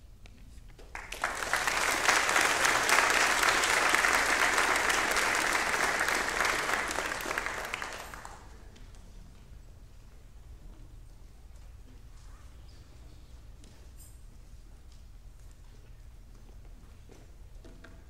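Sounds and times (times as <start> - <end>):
congregation applauding: 0.9 - 8.6.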